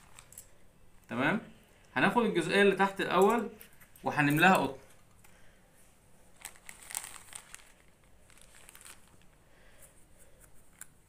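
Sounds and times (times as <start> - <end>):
cotton wool rustling: 6.3 - 9.4.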